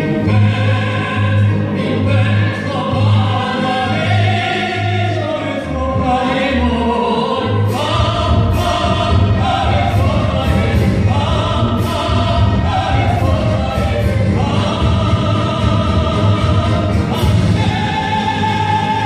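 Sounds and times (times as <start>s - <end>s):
amplified accompaniment with pulsing bass: 0.0s - 19.0s
man and woman singing operatically: 0.0s - 19.0s.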